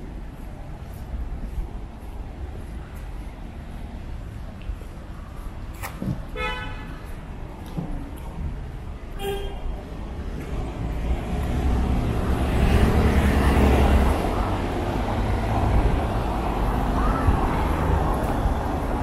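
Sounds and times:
road noise: 0.0s - 19.0s
vehicle engine rumble passing: 10.0s - 19.0s.

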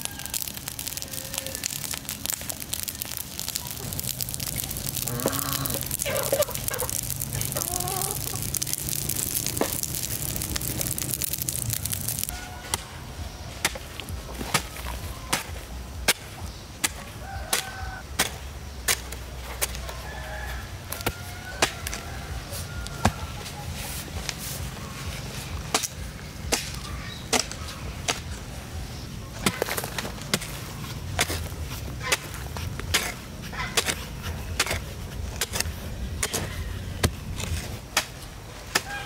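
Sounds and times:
chickens clucking: 5.2s - 8.7s.

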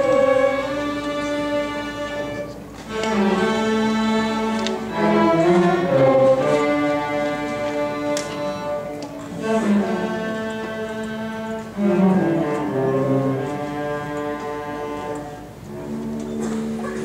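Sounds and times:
string orchestra bowed notes: 0.0s - 17.0s.

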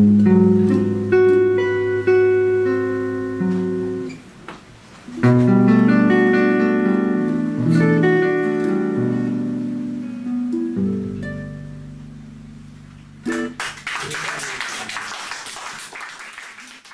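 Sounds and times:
ukulele and guitar jazz chords: 0.0s - 4.3s, 4.9s - 13.8s.

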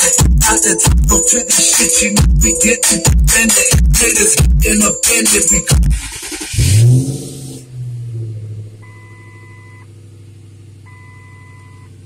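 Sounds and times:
car engine idling: 3.1s - 12.0s
two-tone warning chime: 8.8s - 9.8s, 10.9s - 11.9s.

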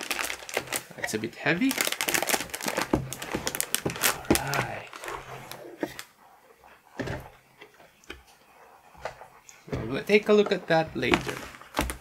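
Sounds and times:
anti-static bag crinkling: 0.0s - 12.0s.

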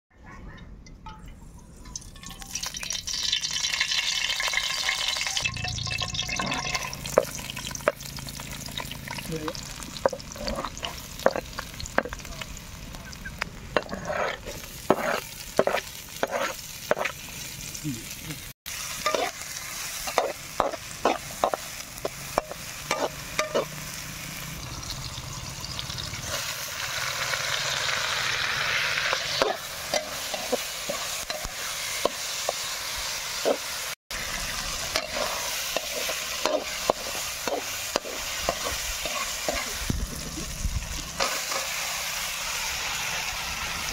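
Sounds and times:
food sizzling in oil: 1.7s - 43.9s
metal spatula scraping a wok: 13.7s - 17.2s, 18.9s - 24.0s, 27.5s - 32.7s, 34.5s - 39.9s.

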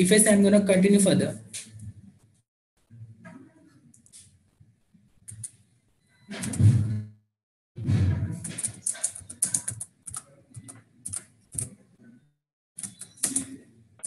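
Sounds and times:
typing on computer keyboard: 5.3s - 5.6s, 8.4s - 11.8s, 12.8s - 13.6s.

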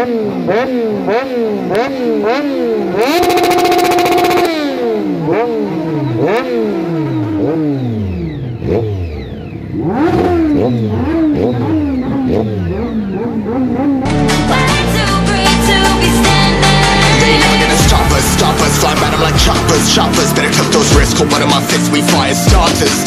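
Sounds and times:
motorcycle engine revving: 0.0s - 23.0s
electronic music: 3.0s - 4.8s, 14.1s - 23.0s.

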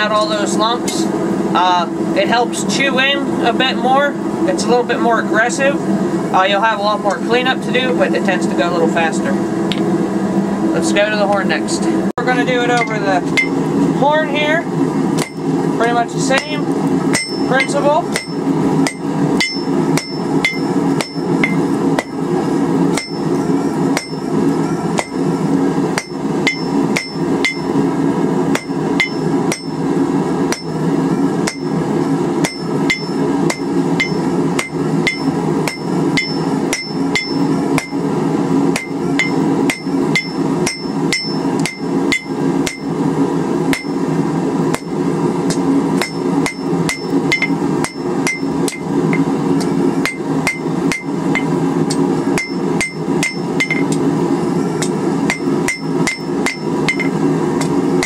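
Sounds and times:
steady low hum: 0.0s - 58.0s
hammer striking steel on anvil: 12.7s - 13.6s, 15.2s - 15.4s, 16.3s - 22.2s, 22.9s - 23.4s, 24.0s - 24.3s, 25.0s - 25.3s, 26.0s - 27.8s, 28.5s - 29.8s, 30.5s - 30.8s, 31.4s - 31.8s, 32.4s - 38.0s, 38.7s - 42.9s, 43.7s - 44.0s, 44.7s - 44.9s, 45.5s - 54.0s, 54.8s - 57.8s.

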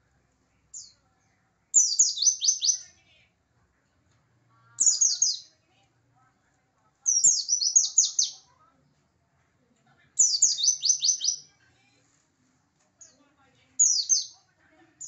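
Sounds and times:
white-eye bird singing: 0.7s - 3.0s, 4.8s - 5.6s, 7.0s - 8.5s, 10.2s - 11.5s, 13.8s - 14.4s.

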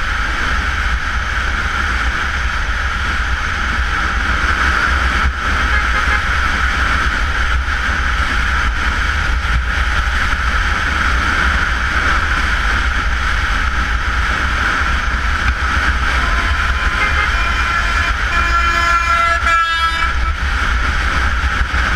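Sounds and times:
motorcycle engine and road noise: 0.0s - 21.9s
wind rush on microphone: 0.0s - 21.9s
vehicle horn: 5.4s - 6.8s, 15.8s - 20.9s.

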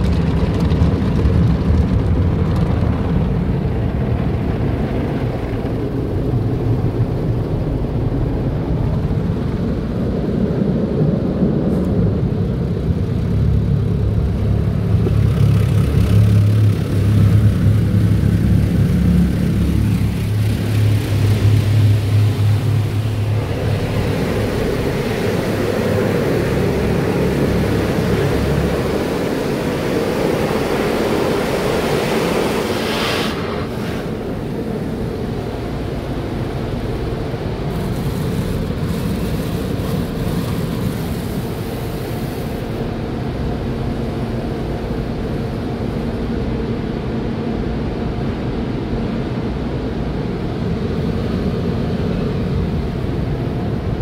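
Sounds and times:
low machine hum: 0.0s - 54.0s
water spray drumming on car: 37.6s - 42.8s.

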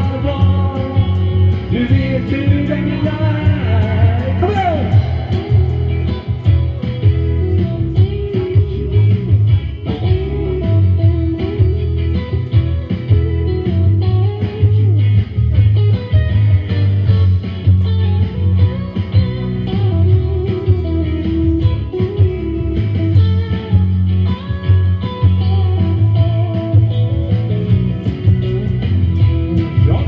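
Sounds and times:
sharp percussive hits: 0.0s - 8.2s
electric guitars: 0.0s - 30.0s
steady low bass: 0.0s - 30.0s.

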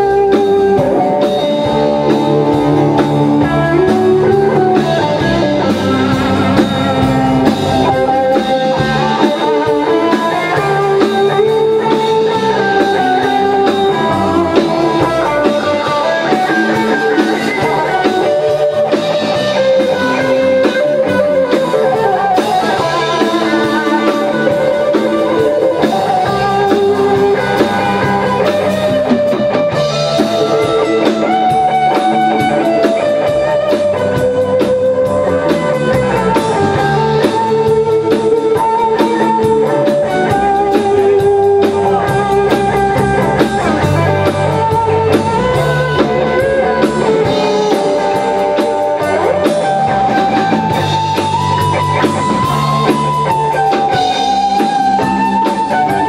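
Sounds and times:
drum kit: 0.0s - 56.0s
electric bass: 0.0s - 56.0s
electric guitar: 0.0s - 56.0s.

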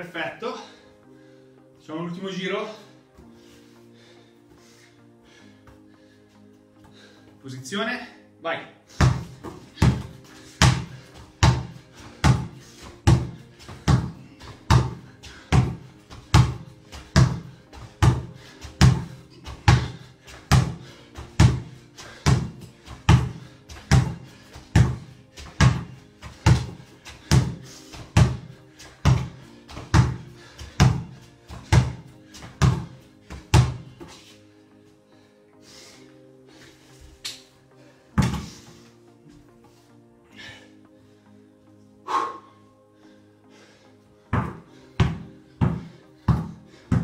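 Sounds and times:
background music: 0.0s - 47.0s
basketball bouncing on tile: 9.0s - 12.5s, 14.7s - 15.8s, 17.2s - 17.4s, 19.7s - 19.9s, 23.1s - 24.2s, 24.8s - 25.0s, 25.6s - 25.9s, 26.5s - 27.5s, 32.6s - 32.9s.

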